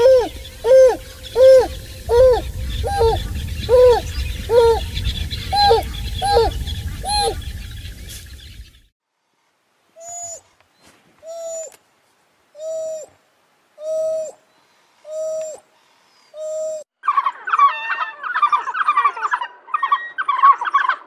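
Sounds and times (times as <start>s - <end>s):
wild dog hooting calls: 0.0s - 7.4s.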